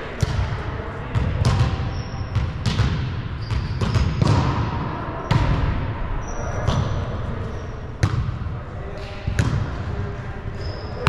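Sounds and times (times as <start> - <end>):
sneakers squeaking on court: 1.1 - 4.6, 6.2 - 8.4, 10.4 - 11.0.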